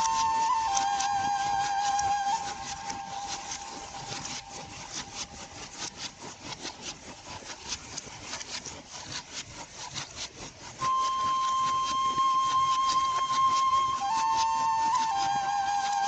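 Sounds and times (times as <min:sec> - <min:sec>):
flute music: 0:00.0 - 0:05.2, 0:10.8 - 0:16.0
rhythmic wooden clattering: 0:00.0 - 0:16.0.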